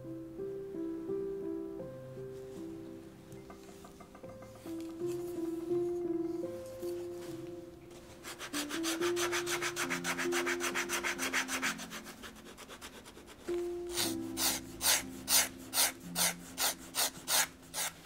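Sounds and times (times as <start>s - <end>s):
soft background music: 0.0s - 18.0s
rapid sanding strokes on leather: 8.2s - 18.0s.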